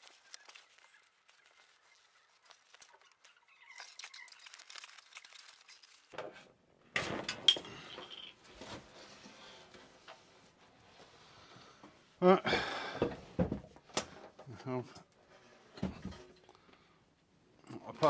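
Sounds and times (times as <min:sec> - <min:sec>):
vinyl and foam crackling: 0:00.0 - 0:06.2.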